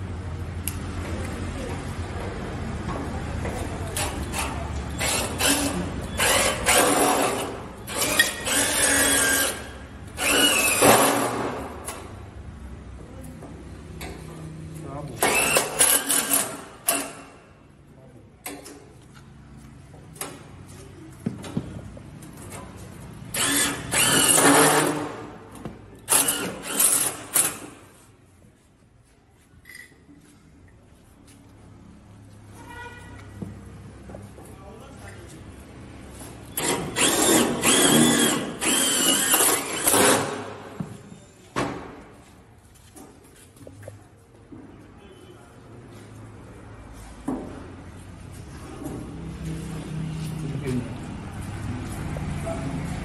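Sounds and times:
impact driver whining: 23.3s - 25.2s, 36.6s - 40.6s
cordless drill running: 23.4s - 24.8s, 36.6s - 40.2s.

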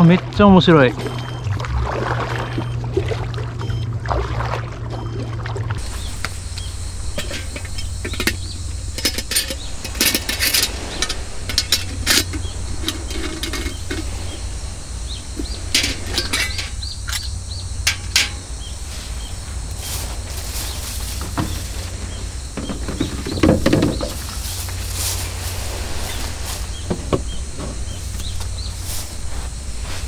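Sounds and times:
steady low rumble: 0.2s - 30.0s
utensils and metal mug clinking: 6.9s - 14.4s, 15.4s - 18.5s.

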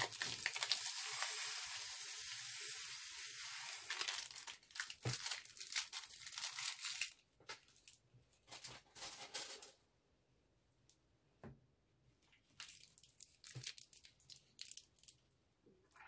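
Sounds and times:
beads pouring hiss: 0.0s - 4.9s.

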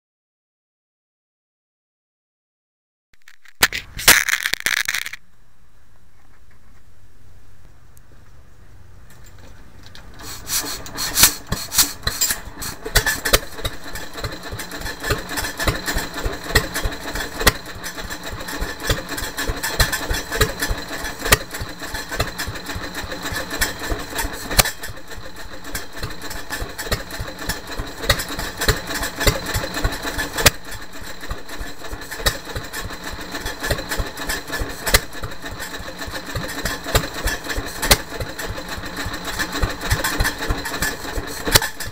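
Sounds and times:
stationary engine knocking: 11.4s - 41.9s.

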